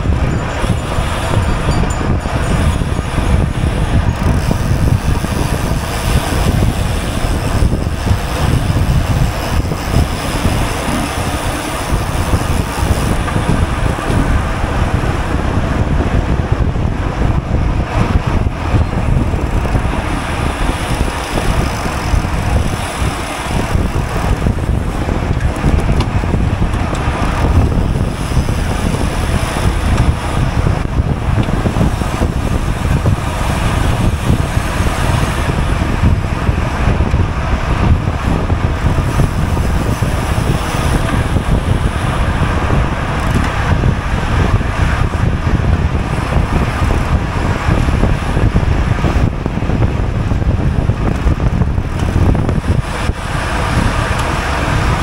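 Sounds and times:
road and tyre noise: 0.0 - 55.0
wind rushing over microphone: 0.0 - 55.0.

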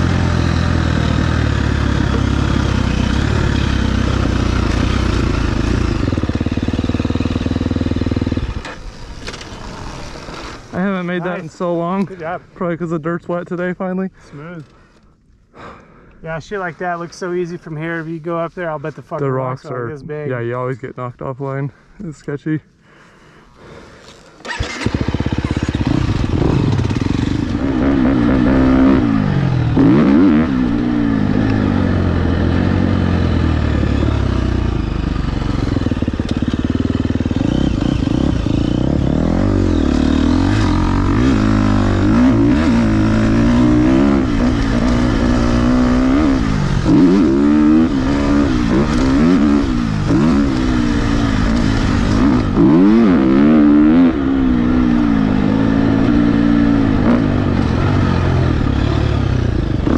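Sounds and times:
dirt bike engine revving: 0.0 - 11.8, 24.4 - 59.9.

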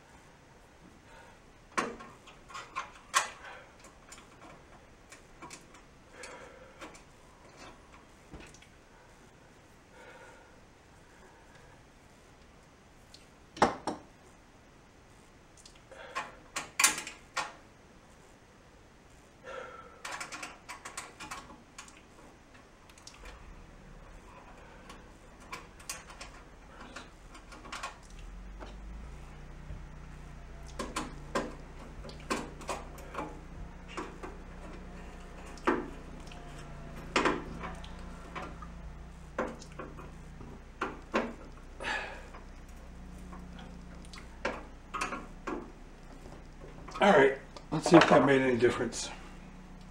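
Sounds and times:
metal gas burner parts clicking: 24.4 - 28.2.

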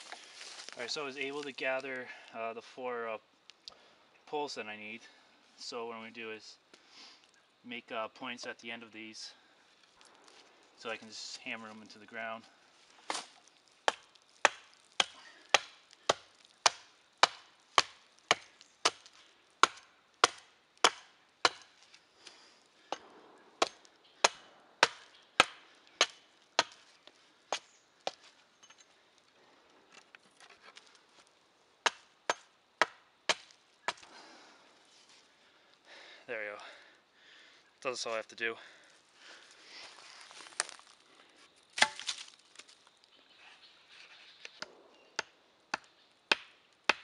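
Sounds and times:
blade chopping wood: 13.0 - 21.8, 22.9 - 26.8, 31.8 - 34.1, 41.8 - 42.3, 44.6 - 47.0.

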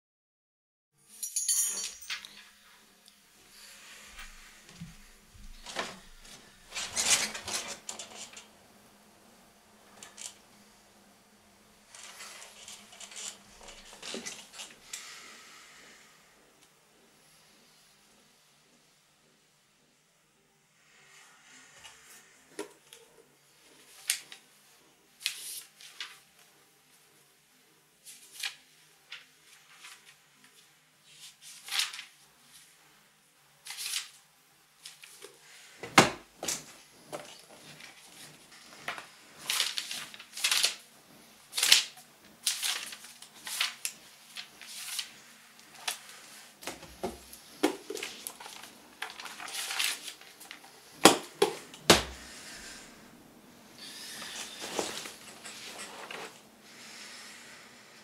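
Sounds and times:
paper pages rustling: 4.2 - 8.5, 11.9 - 14.8, 28.1 - 32.6, 33.7 - 34.2, 36.5 - 40.8, 41.5 - 50.9.

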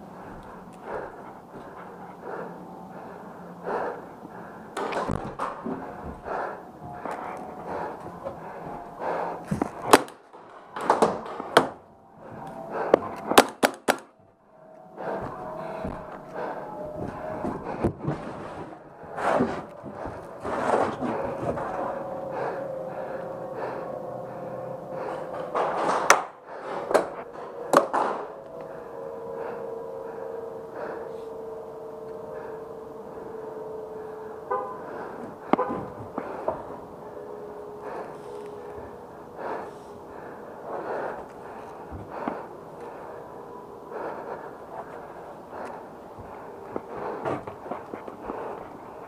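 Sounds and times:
steady pitched hum: 0.0 - 49.0
paintball gun cracks: 13.4 - 14.1.

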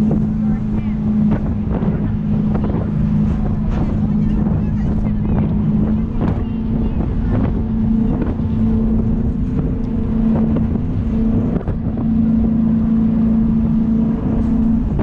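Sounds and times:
boat engines droning: 0.0 - 15.0
wind rushing over microphone: 0.0 - 15.0.

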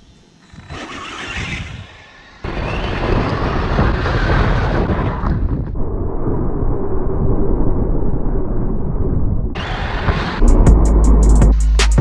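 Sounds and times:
low motor rumble: 5.7 - 11.8.

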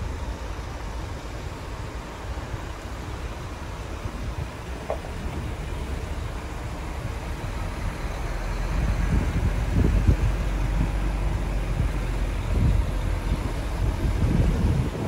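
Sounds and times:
diesel truck engine rumbling: 0.0 - 15.0
low thumps: 4.2 - 15.0.

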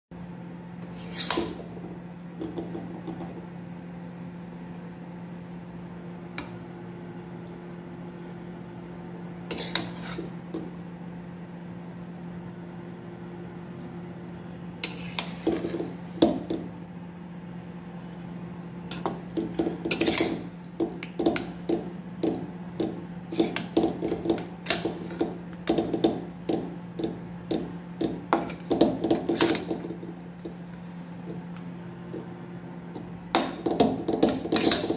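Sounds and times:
steady low hum: 0.1 - 34.9
metal spatula scraping metal pan: 0.9 - 1.6, 19.9 - 20.4, 29.2 - 29.8, 33.4 - 34.9.

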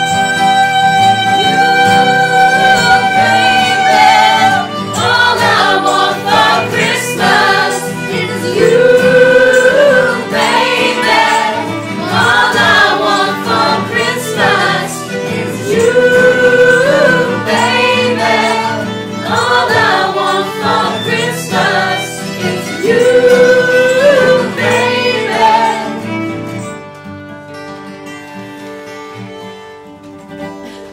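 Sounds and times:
acoustic guitar: 0.0 - 30.9
violin: 0.0 - 30.9
group singing in chorus: 1.3 - 26.2.

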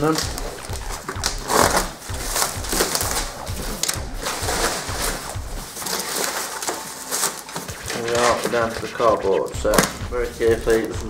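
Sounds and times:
plastic packaging crinkling: 5.7 - 8.6.

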